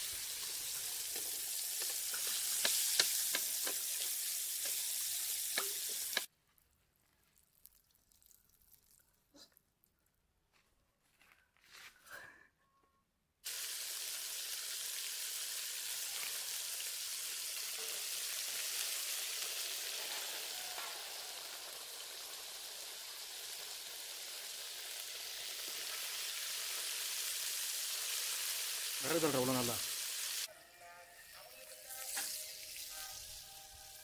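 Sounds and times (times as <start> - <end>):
fish deep-frying in oil: 0.0 - 6.3, 13.5 - 30.5.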